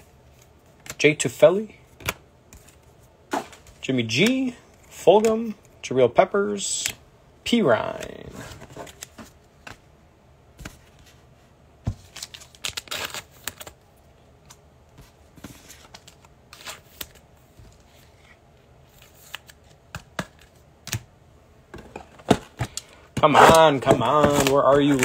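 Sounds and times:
foil wrappers tearing and crinkling: 12.1s - 13.8s.

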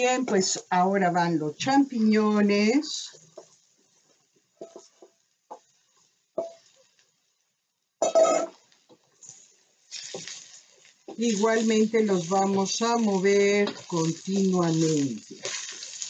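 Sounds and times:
spatula tapping and scraping wok: 3.1s - 6.8s, 12.1s - 14.6s, 15.2s - 16.0s.

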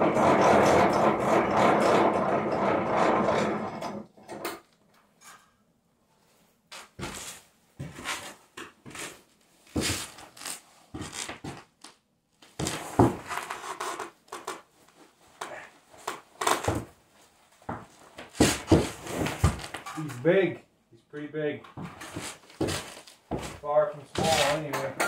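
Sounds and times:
rustling and scraping: 5.0s - 11.8s, 12.4s - 20.4s, 21.6s - 25.0s.

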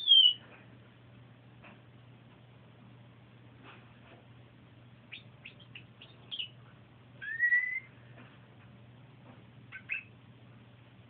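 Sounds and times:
canary singing: 0.0s - 0.4s, 5.0s - 6.6s, 7.2s - 8.0s, 9.7s - 10.2s.

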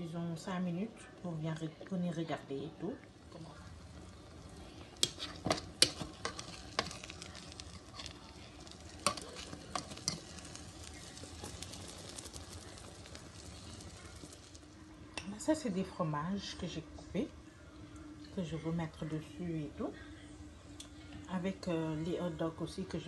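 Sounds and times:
eggs sizzling in a frying pan: 0.1s - 23.0s
butter popping and crackling: 3.5s - 15.3s.

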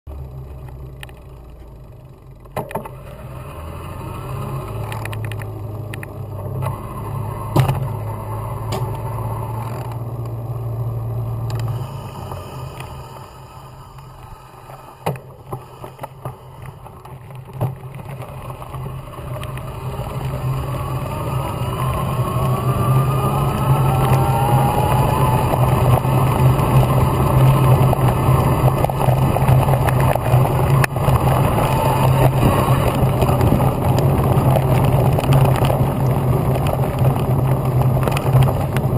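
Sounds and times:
wind: 0.1s - 38.9s
bike knocks and rattles: 7.5s - 8.0s.

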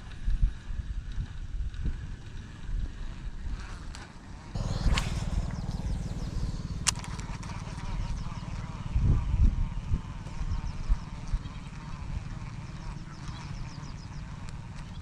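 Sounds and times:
small engine running: 4.6s - 15.0s
sharp click: 4.8s - 7.5s.

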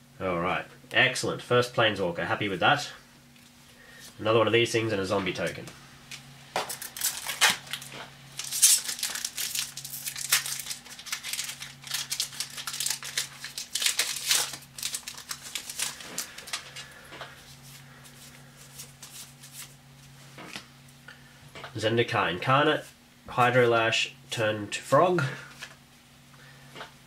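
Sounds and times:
foil wrapper crinkling and tearing: 6.6s - 17.0s.

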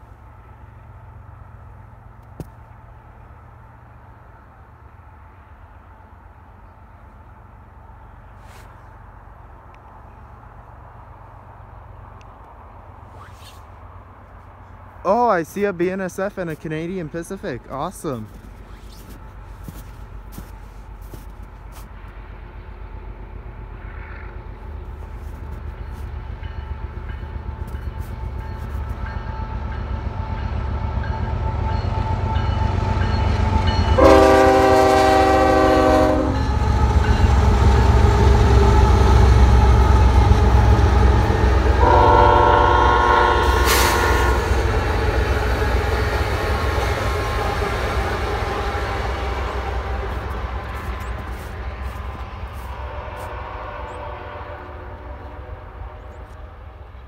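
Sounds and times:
locomotive engine rumble: 0.0s - 57.0s
locomotive horn blasts: 33.5s - 45.9s, 46.6s - 56.7s.

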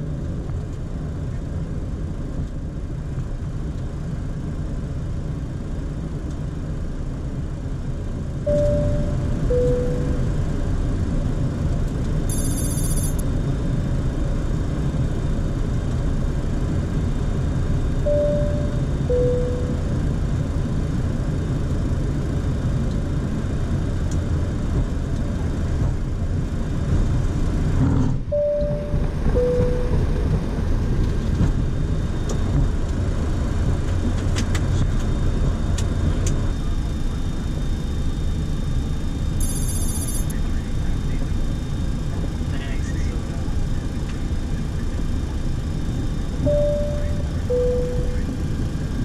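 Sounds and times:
jet taxiing low rumble: 0.0s - 49.0s
two-note falling chime: 8.5s - 10.2s, 18.1s - 19.9s, 46.5s - 48.3s.

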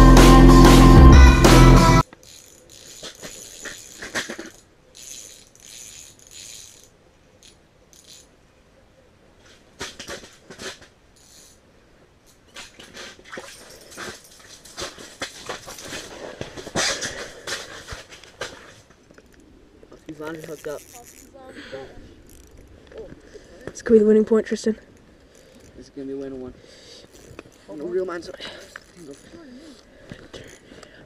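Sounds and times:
fishing reel clicks: 2.0s - 8.4s, 11.2s - 11.6s, 20.1s - 21.4s, 22.2s - 22.7s, 24.9s - 25.8s, 27.0s - 27.8s, 28.6s - 30.9s.

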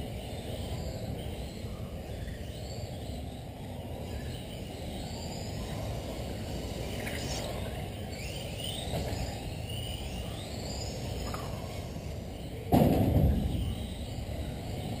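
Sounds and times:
electric motors whining past: 0.0s - 15.0s
loud thump: 12.7s - 13.6s.

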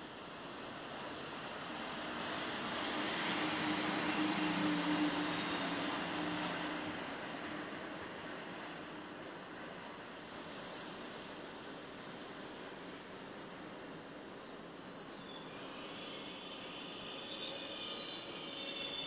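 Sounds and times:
train wheels squealing on rails: 0.0s - 7.8s, 10.2s - 19.0s.

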